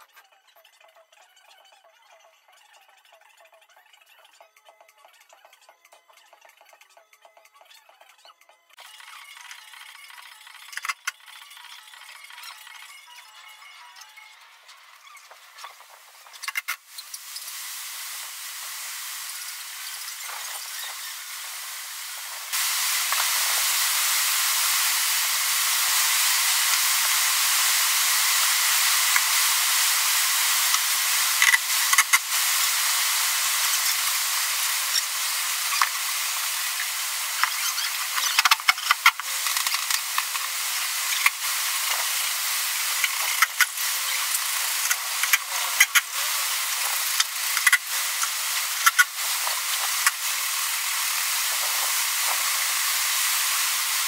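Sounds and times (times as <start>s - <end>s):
steady hiss: 16.1s - 54.0s.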